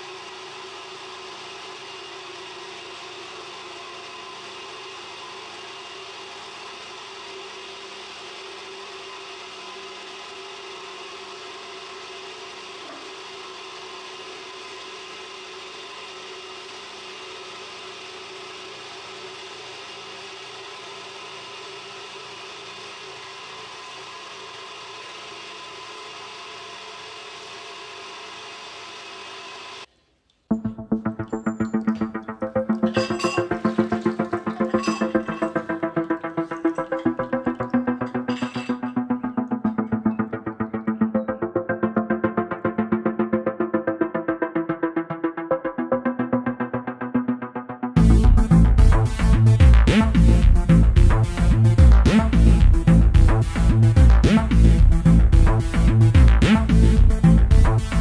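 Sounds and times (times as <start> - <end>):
machine whir and motor hum: 0.0 - 29.9, 30.6 - 43.3.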